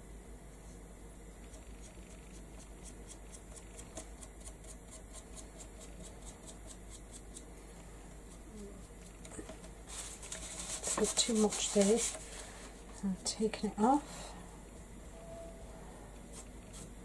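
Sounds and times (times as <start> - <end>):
dry paintbrush scratching wood: 1.5 - 7.4, 8.3 - 12.3.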